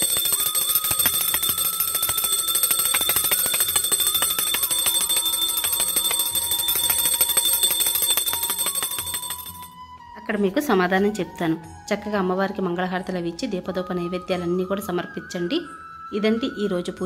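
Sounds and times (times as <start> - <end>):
small brass hand bell ringing rapidly: 0.0 - 9.7.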